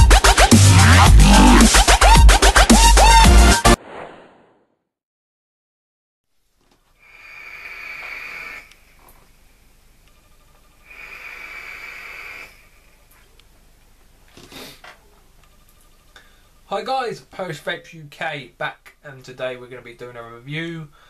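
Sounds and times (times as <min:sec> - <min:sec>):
vape draw hiss with whistle: 0:07.0 - 0:08.9, 0:10.9 - 0:12.6.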